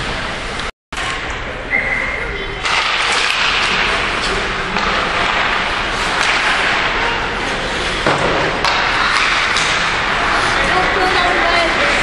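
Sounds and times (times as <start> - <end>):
rink din of skating: 0.0 - 12.0
sharp hockey knocks: 4.7 - 7.0, 8.0 - 10.2.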